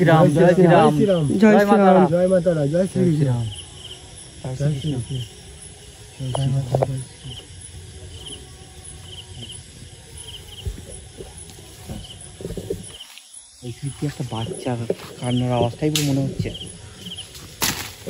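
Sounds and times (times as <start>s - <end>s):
man speaking: 0.0s - 3.5s, 13.6s - 16.8s
crickets chirping: 0.0s - 18.0s.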